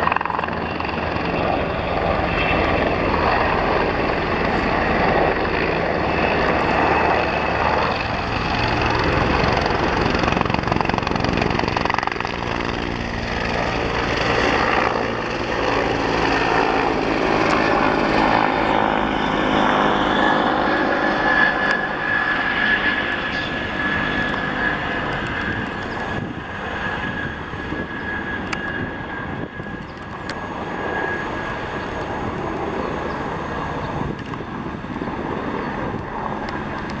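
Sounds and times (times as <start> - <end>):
helicopter rotor and engine: 0.0 - 37.0.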